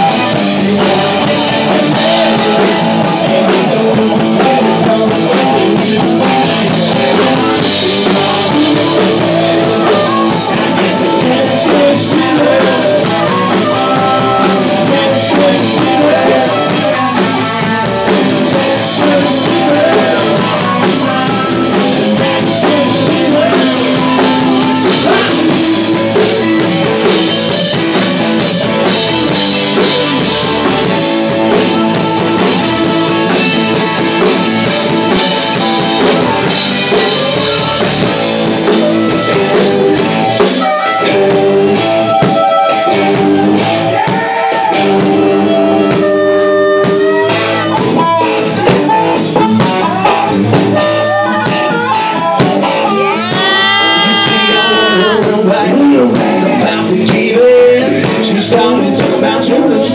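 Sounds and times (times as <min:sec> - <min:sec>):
bass guitar: 0:00.0 - 0:59.9
electric guitars: 0:00.0 - 0:59.9
pounding drum kit: 0:00.0 - 0:59.9
harmonica: 0:52.9 - 0:55.4.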